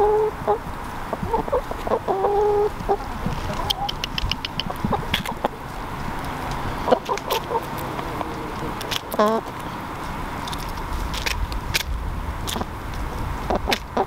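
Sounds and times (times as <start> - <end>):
chickens clucking: 0.0 - 9.7, 13.5 - 14.0
drawn-out hen calls: 0.0 - 9.9, 13.4 - 14.0.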